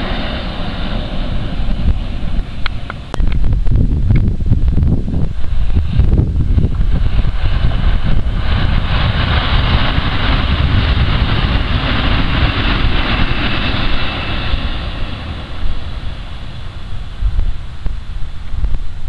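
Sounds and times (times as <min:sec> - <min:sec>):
electric train running past: 0:00.0 - 0:03.2, 0:05.3 - 0:19.0
wind buffeting microphone: 0:00.0 - 0:19.0.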